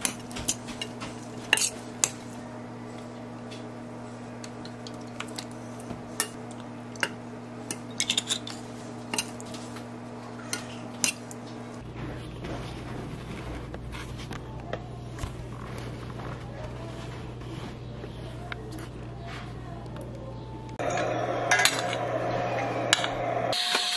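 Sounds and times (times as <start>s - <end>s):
low hum: 17.1s - 23.6s.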